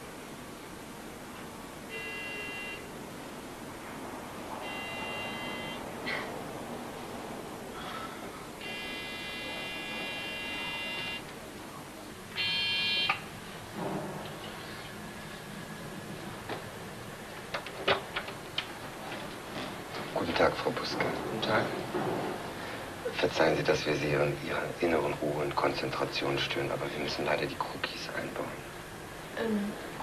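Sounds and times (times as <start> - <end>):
electric doorbell buzzer: 1.9 - 2.9, 4.6 - 5.9, 8.6 - 11.3, 12.4 - 13.2.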